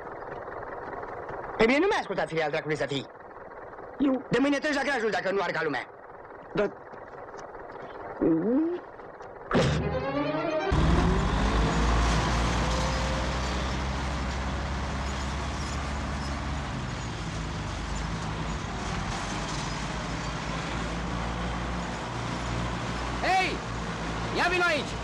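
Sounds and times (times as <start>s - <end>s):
tractor engine running: 0.0s - 25.0s
short falling pitched sound: 9.5s - 12.0s.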